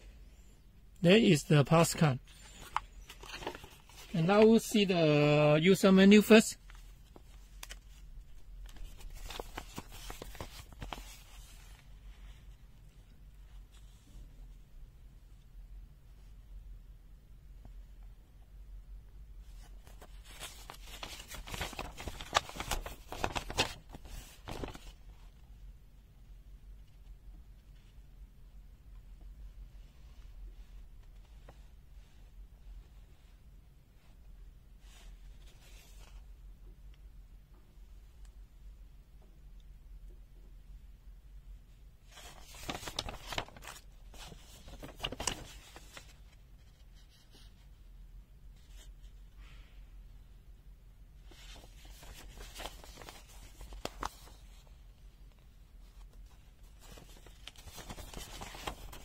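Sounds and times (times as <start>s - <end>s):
paper rustling and crinkling: 1.6s - 4.9s, 6.1s - 12.5s, 19.5s - 25.4s, 34.8s - 36.2s, 42.0s - 47.6s, 51.2s - 59.0s.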